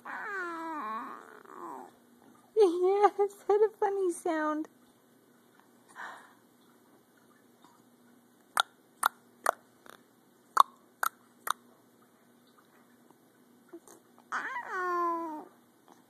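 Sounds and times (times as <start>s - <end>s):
person clicking tongue: 10.6s - 11.6s.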